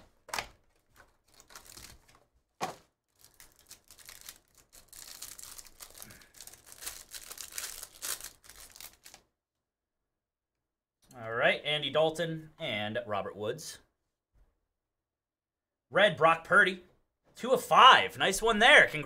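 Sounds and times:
plastic wrapper tearing and crinkling: 0.0 - 9.3.

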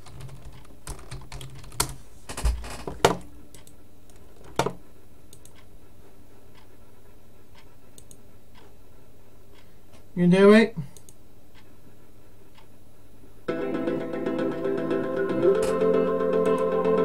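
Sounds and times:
keyboard clicks and taps: 0.0 - 5.6.

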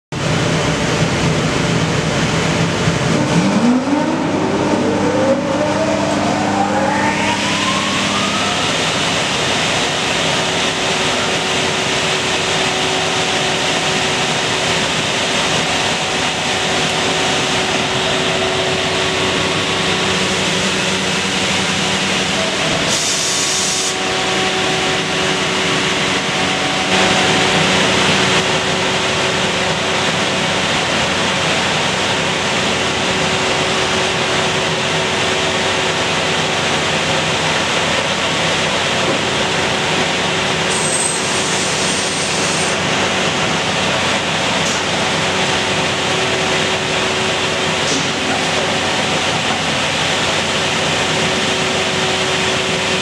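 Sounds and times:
machines hissing and humming: 0.2 - 53.0
motor spinning up whine: 2.6 - 38.3.

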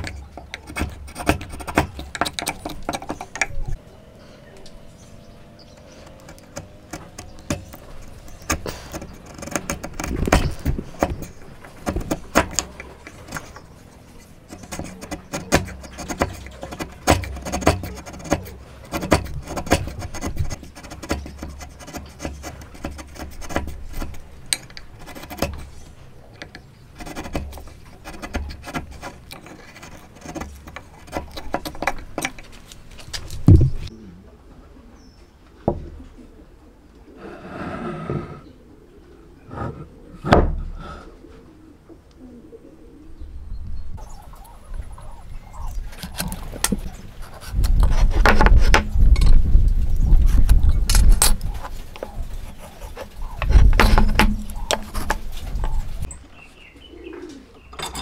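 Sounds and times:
chisel scraping wood: 0.0 - 3.8, 5.7 - 33.9, 45.0 - 56.2.

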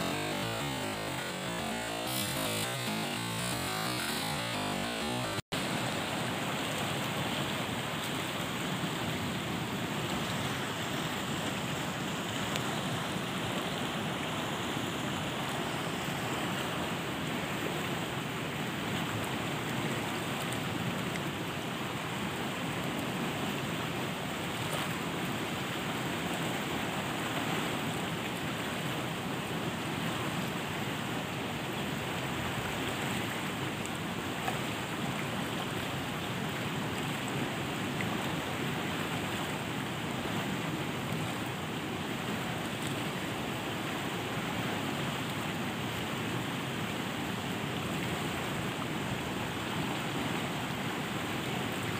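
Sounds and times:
river water rushing: 0.0 - 51.9.

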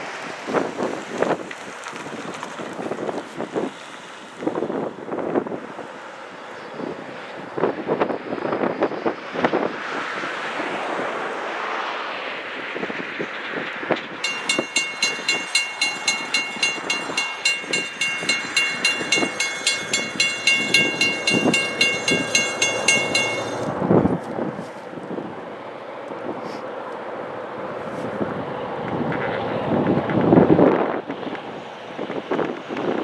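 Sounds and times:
crossing bell clanging: 14.2 - 23.8.

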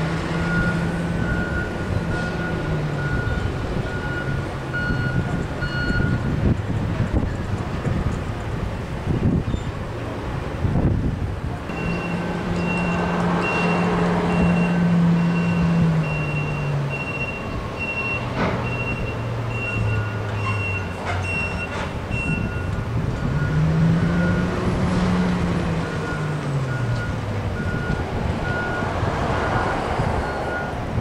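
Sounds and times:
forklift diesel engine running: 0.0 - 31.0
reversing alarm beeping: 0.3 - 6.3, 11.7 - 24.6, 25.8 - 30.8
lower-pitched reversing beeper: 11.7 - 22.7.

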